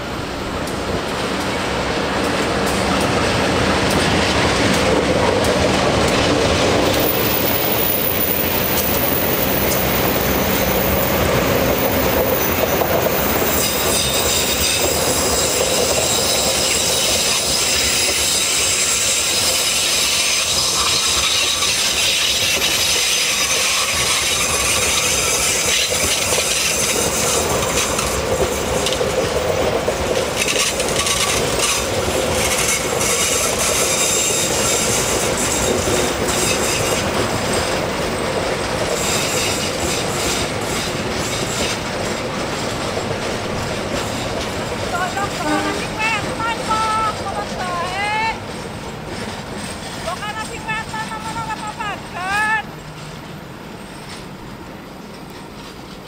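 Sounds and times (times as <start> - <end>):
wheels rumbling on track: 0.0 - 56.0
train wheels squealing: 6.9 - 29.0, 30.4 - 37.8, 38.8 - 42.7.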